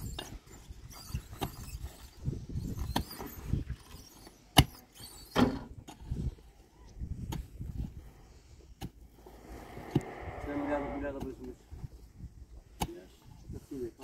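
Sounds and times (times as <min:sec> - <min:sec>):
low rumbling: 0:09.0 - 0:12.5
sharp knocks and dull thumps: 0:12.7 - 0:13.3.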